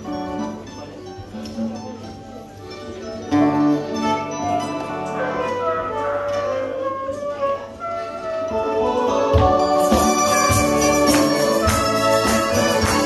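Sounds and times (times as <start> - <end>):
acoustic guitar: 0.0 - 13.0
ensemble playing a hymn: 0.0 - 13.0
accordion: 3.0 - 13.0.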